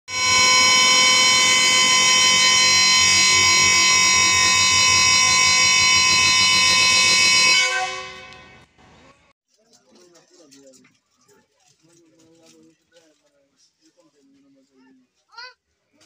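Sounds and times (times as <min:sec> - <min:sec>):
locomotive air horn blast: 0:00.1 - 0:08.7.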